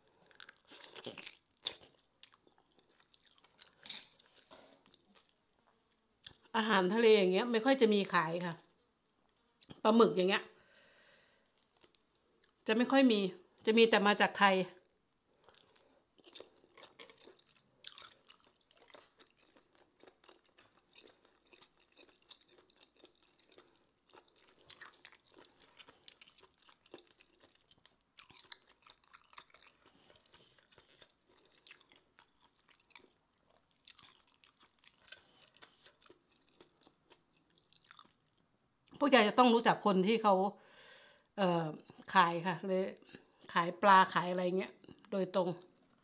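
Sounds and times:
person chewing: 0.0s - 6.5s, 11.6s - 12.6s, 15.3s - 39.0s.

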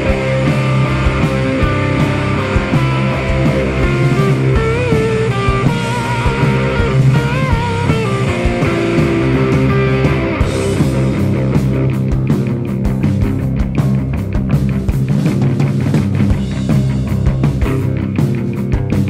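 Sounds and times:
bent wavering guitar notes: 0.0s - 19.0s
rock music backing track: 0.0s - 19.0s.

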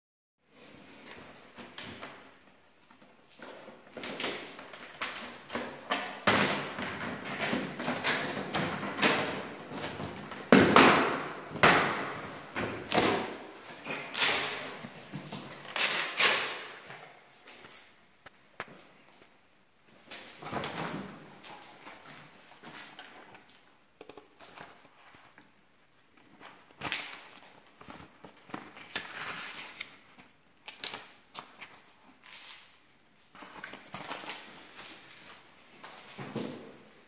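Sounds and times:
shrink-wrap tearing and crinkling: 15.5s - 16.6s.

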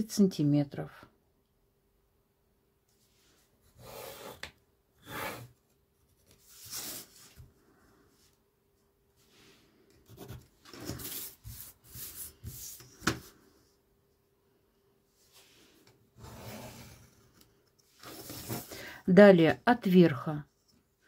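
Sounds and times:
ruler and paper sliding on table: 3.3s - 5.6s, 16.2s - 17.2s, 17.9s - 18.7s
pencil strokes: 9.2s - 13.0s.

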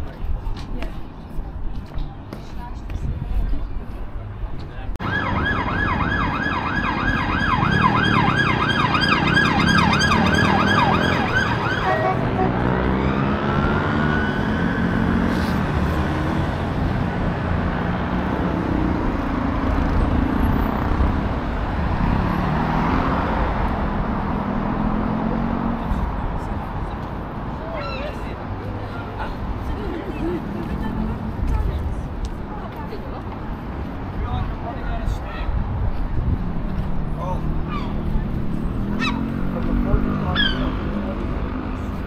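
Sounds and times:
busy street traffic: 0.0s - 42.0s
emergency siren yelping: 5.0s - 15.2s.

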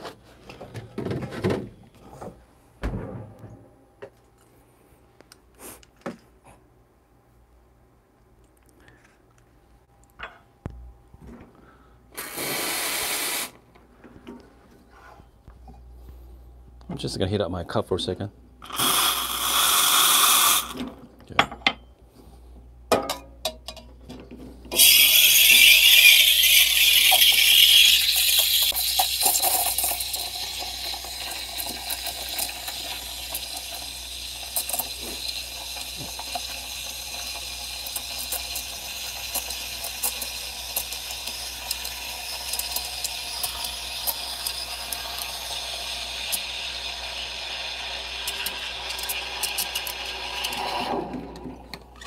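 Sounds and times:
steam wand hissing in milk: 12.2s - 13.6s, 18.7s - 20.8s, 24.7s - 51.1s.

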